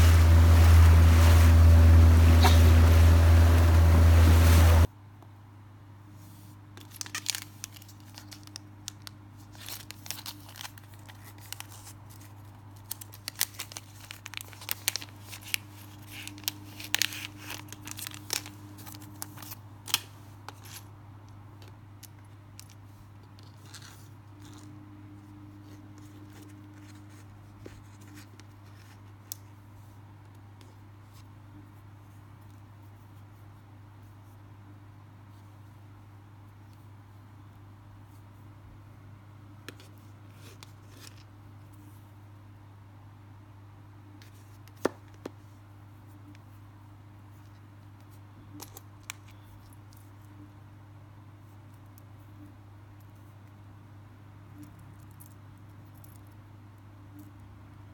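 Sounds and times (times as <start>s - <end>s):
wind and water noise: 0.0s - 4.9s
low steady hum: 0.0s - 5.6s.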